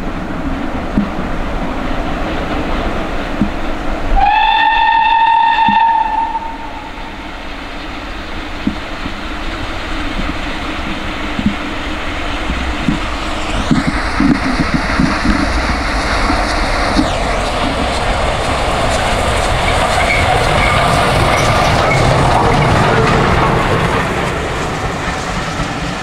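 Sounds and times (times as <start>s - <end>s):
steam locomotive exhaust beats: 0.0s - 26.0s
steam locomotive whistle: 4.1s - 7.2s.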